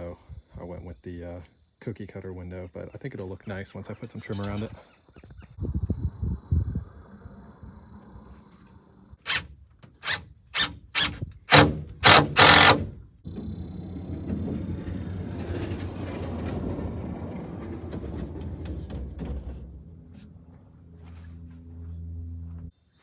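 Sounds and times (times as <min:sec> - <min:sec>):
tool striking wooden frame: 0:10.0 - 0:13.4.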